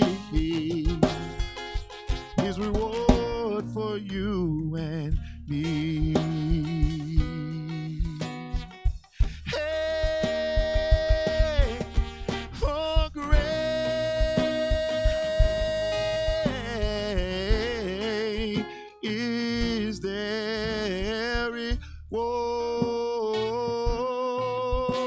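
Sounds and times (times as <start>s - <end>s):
acoustic guitar: 0.0s - 25.0s
bass guitar: 0.0s - 25.0s
drum kit: 0.0s - 25.0s
man singing with vibrato: 0.0s - 25.0s.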